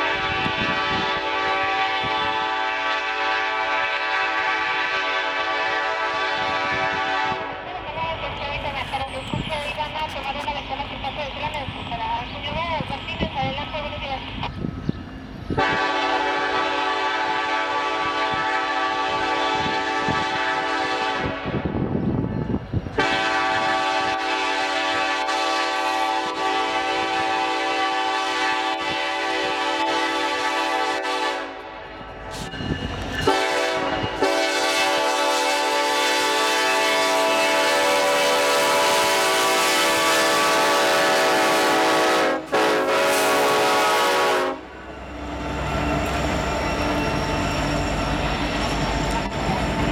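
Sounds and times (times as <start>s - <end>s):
locomotive air horn blasts: 0.0s - 7.7s, 15.6s - 21.8s, 23.0s - 31.8s, 33.2s - 44.7s
locomotive rumble: 0.0s - 49.9s.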